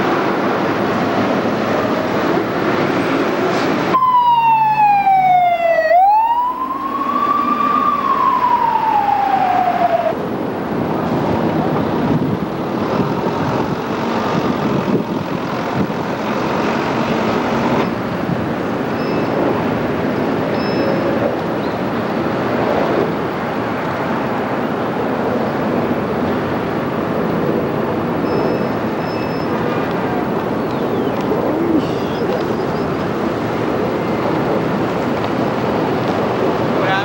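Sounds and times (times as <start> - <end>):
street noise: 0.0 - 37.0
emergency vehicle siren wailing: 3.9 - 10.8, 28.6 - 37.0.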